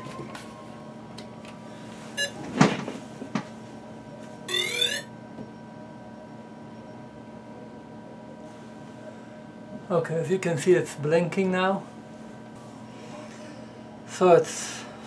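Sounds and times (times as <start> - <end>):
faint electronic whine: 3.8 - 9.4
short electronic beep: 4.5 - 5.1
rising start-up chirp tones: 4.5 - 5.6.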